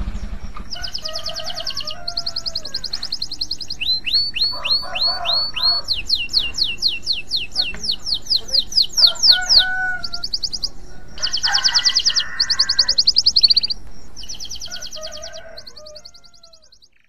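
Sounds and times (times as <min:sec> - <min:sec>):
canary singing trills: 0:00.0 - 0:17.0.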